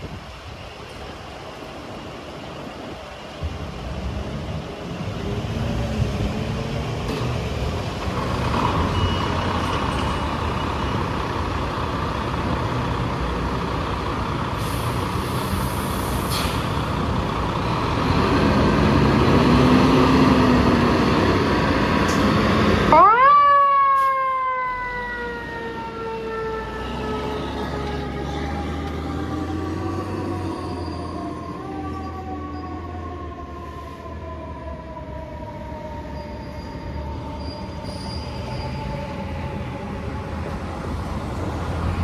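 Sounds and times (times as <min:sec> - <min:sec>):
air brakes hissing: 0:14.6 - 0:16.9.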